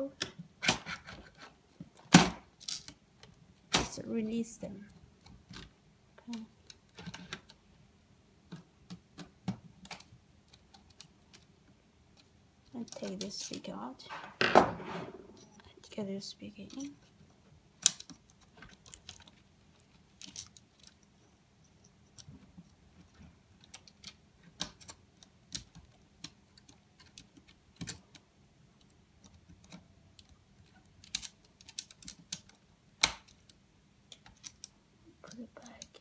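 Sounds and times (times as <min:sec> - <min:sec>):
small plastic clicks and taps: 0:22.1 - 0:36.0.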